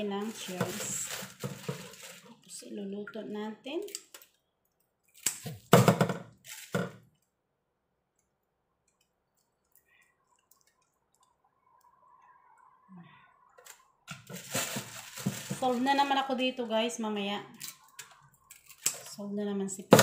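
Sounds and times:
clicks and cracks of prawns cleaned: 0:03.8 - 0:05.7.

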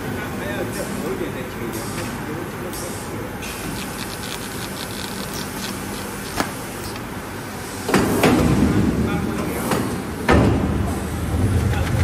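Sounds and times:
machine humming and ticking: 0:03.4 - 0:07.2.

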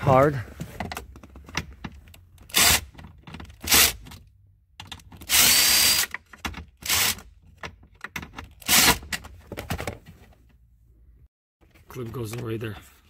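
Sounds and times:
impact driver bursts: 0:05.3 - 0:06.1.

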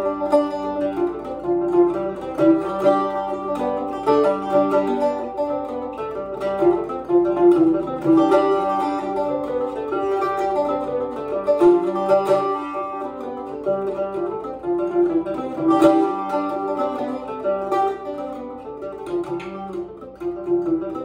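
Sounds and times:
bouzouki playing jig melody: 0:00.0 - 0:21.0.

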